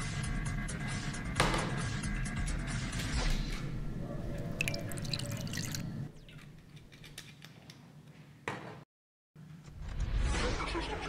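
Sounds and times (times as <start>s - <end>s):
liquid pouring into a glass: 4.4s - 6.4s.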